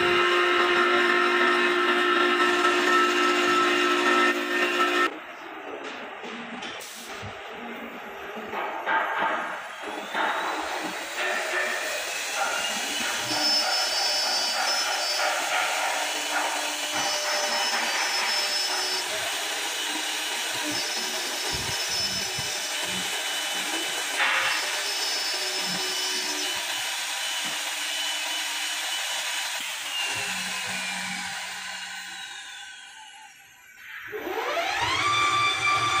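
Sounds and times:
lathe motor whine: 9.6s - 36.0s
cutters chipping wood: 9.7s - 32.9s.

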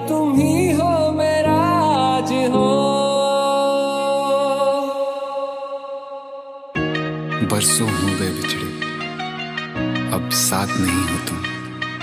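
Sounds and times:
background music chords: 0.0s - 12.0s.

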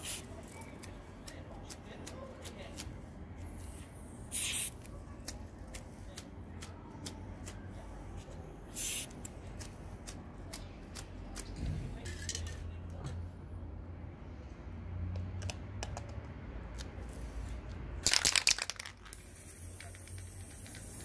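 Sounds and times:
spray can hissing: 0.0s - 0.3s, 4.3s - 4.8s, 8.7s - 9.2s, 19.1s - 21.0s.

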